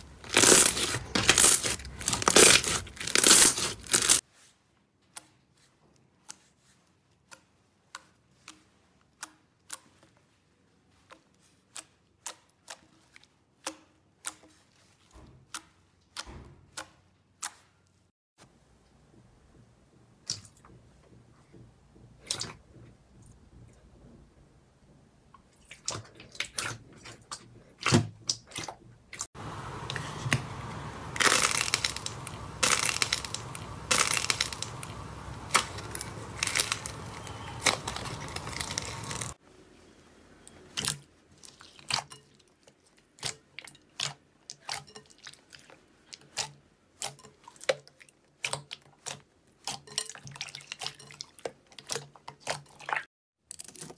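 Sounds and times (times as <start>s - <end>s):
dense crackling of squeezed slime: 0.0s - 4.2s, 29.4s - 39.4s.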